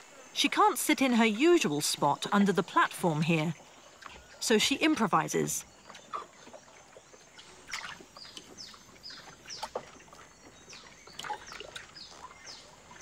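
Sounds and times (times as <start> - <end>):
bird chirping: 2.3 - 13.0.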